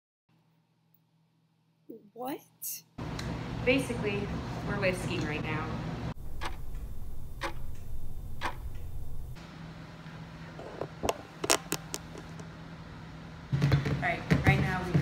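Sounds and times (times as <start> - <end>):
faint steady hum: 1.8 - 13.5
sharp clicks: 6.4 - 8.9.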